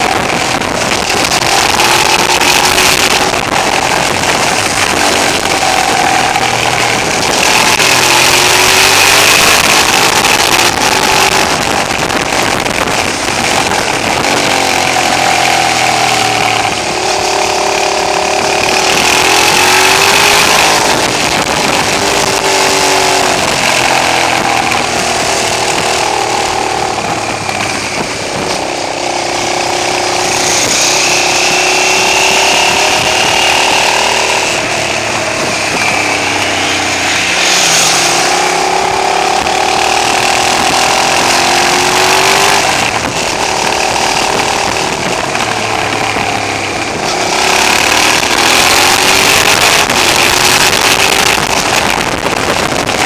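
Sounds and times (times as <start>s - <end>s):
motorcycle engine revving: 0.0s - 53.0s
wind rushing over microphone: 0.0s - 53.0s.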